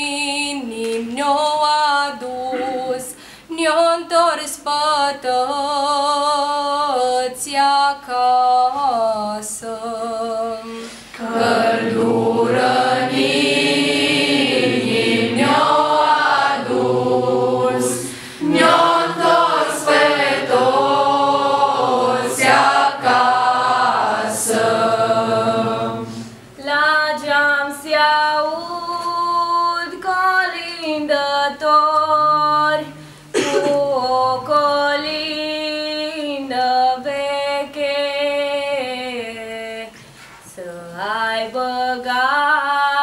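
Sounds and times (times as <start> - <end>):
young voices singing unaccompanied: 2.0 - 3.2, 8.7 - 40.0.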